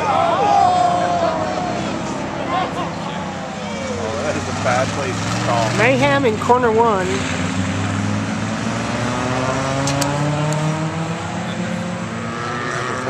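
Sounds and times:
race car engines accelerating: 0.0s - 13.0s.

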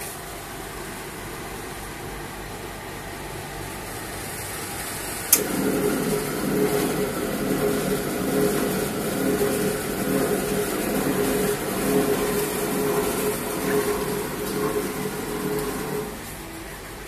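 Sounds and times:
machine humming: 0.0s - 17.0s
pulsing motor hum: 5.4s - 16.8s.

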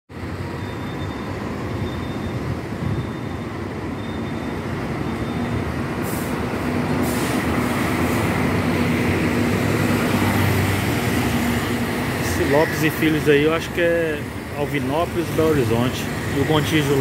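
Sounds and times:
diesel engine and tyre noise: 0.1s - 17.0s
short hisses: 7.0s - 8.2s.

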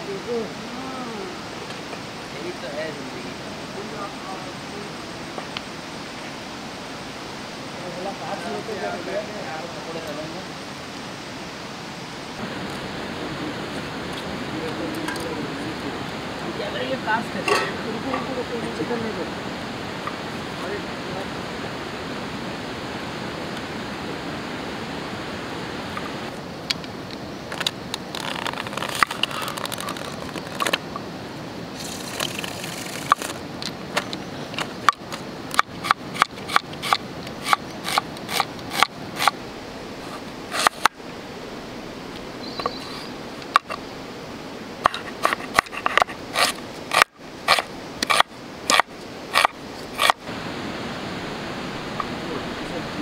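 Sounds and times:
river water rushing: 0.0s - 53.0s
scraping and rustling: 27.5s - 30.9s, 31.8s - 33.4s.

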